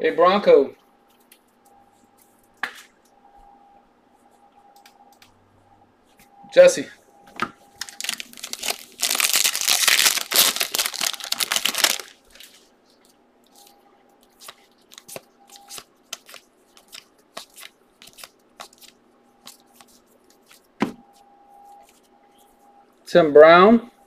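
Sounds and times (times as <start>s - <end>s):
foil pack tearing: 7.8s - 12.2s.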